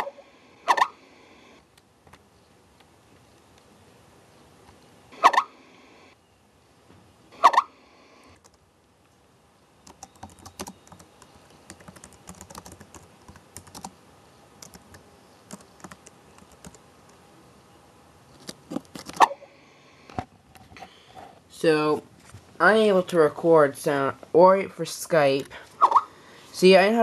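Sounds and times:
typing on laptop keyboard: 9.8s - 14.0s, 14.6s - 16.8s.

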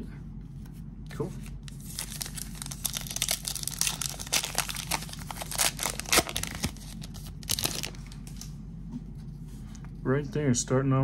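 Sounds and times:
foil wrapper tearing and crinkling: 1.7s - 8.2s.

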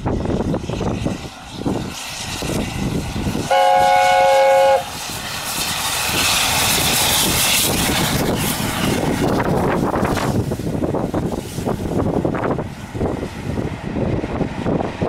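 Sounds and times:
locomotive rushing past: 0.0s - 15.0s
wind on microphone: 0.0s - 15.0s
steam locomotive chime whistle: 3.4s - 5.0s.

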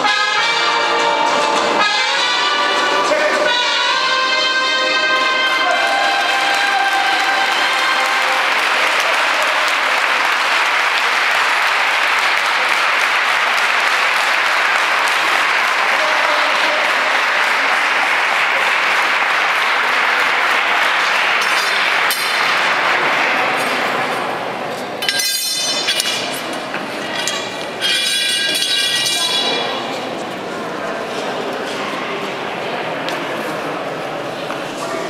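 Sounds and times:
crowd applauding in a church: 5.2s - 24.5s.

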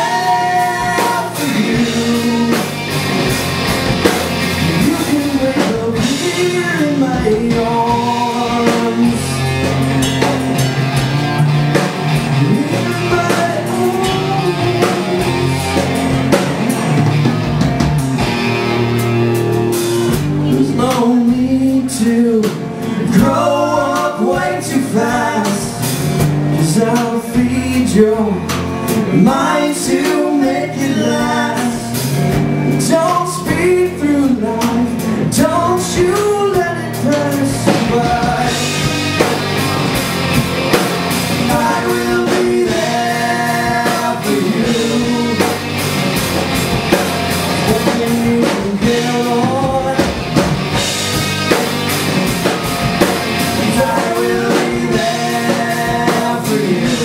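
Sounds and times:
man singing: 0.0s - 3.0s, 4.5s - 10.6s, 12.3s - 16.1s, 20.4s - 39.3s, 41.2s - 45.8s, 47.4s - 51.6s, 53.0s - 57.0s
drum kit: 0.0s - 57.0s
electric guitars: 0.0s - 57.0s.

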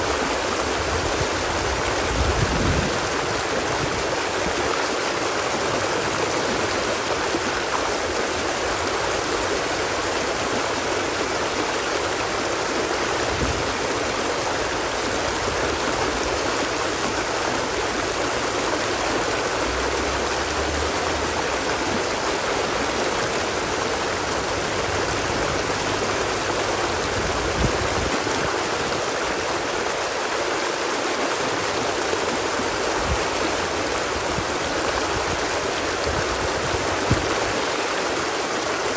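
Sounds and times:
stream flowing: 0.0s - 38.9s.

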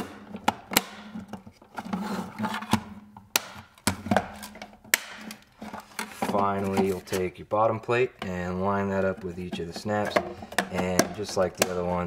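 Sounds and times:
plastic rubbing: 0.0s - 3.0s, 4.2s - 12.0s
plastic clicks and knocks: 8.2s - 12.0s.

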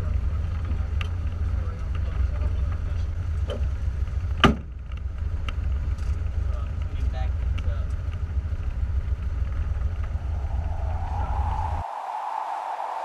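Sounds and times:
plane engine idling drone: 9.6s - 13.0s.

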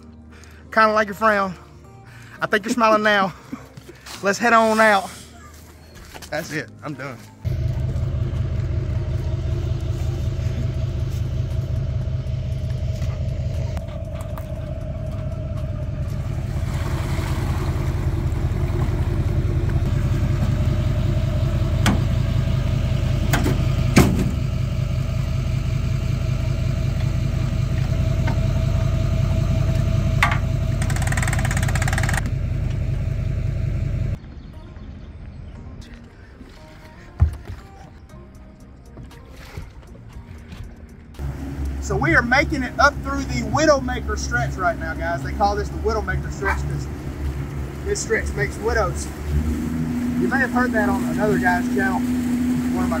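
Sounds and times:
engine running under load: 7.4s - 34.2s, 41.2s - 53.0s.

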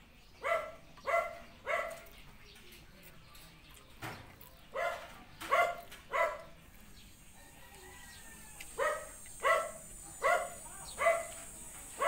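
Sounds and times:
dog barking: 0.4s - 2.1s, 4.7s - 6.6s, 8.8s - 12.0s.

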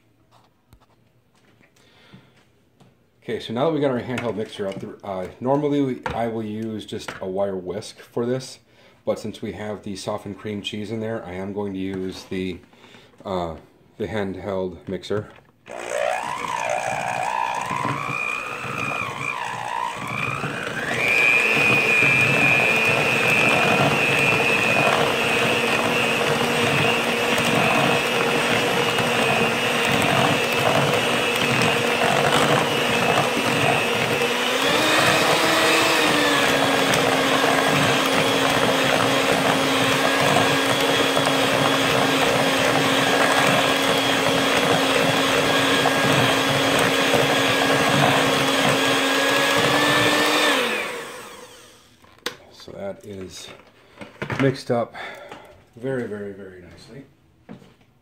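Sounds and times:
electric mixer motor whine: 15.7s - 52.0s.

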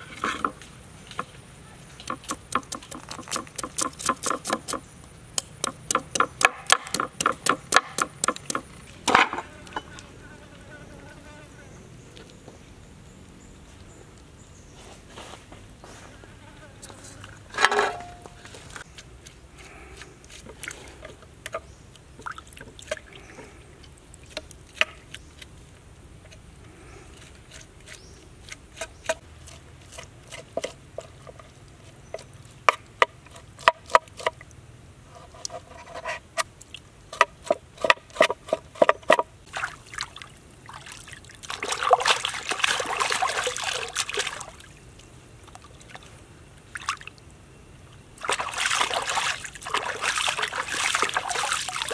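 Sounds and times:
knife chopping on wooden board: 5.6s - 8.7s
water splashing: 39.5s - 47.2s, 48.2s - 51.9s.

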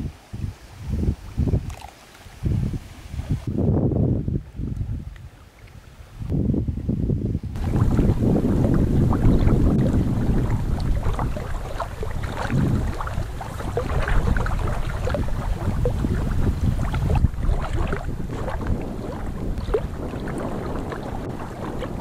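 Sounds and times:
wind buffeting microphone: 0.0s - 22.0s
water lapping: 0.6s - 3.5s, 7.6s - 22.0s.

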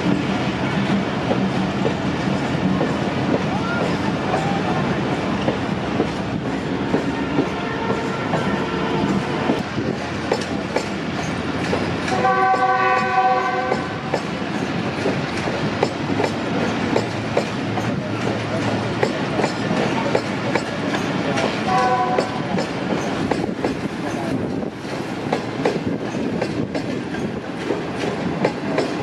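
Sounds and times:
train wheels clicking over rail joints: 0.0s - 29.0s
train horn: 6.7s - 9.6s, 12.1s - 14.1s, 21.6s - 22.5s.

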